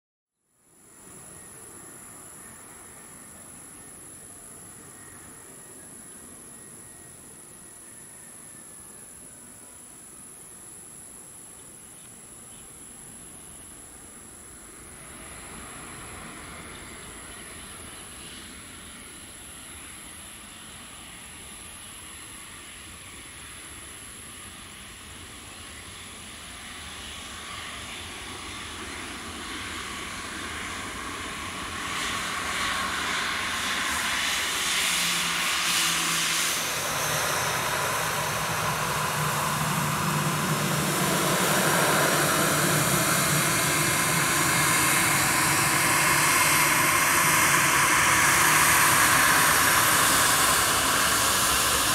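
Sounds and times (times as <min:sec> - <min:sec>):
jet engines rushing with faint whine: 0:00.4 - 0:51.9.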